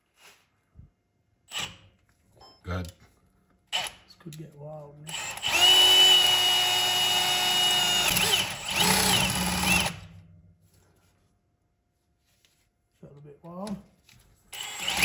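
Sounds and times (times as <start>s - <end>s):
power drill whining: 5.1s - 10.1s, 14.5s - 15.0s.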